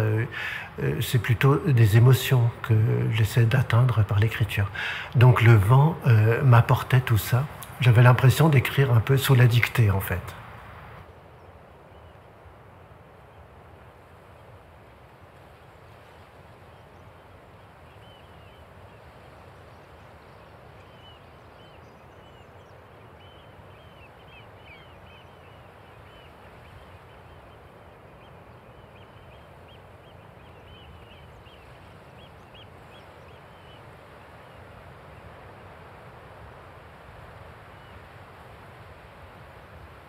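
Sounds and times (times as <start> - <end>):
high arching bird calls: 0.0 - 10.4.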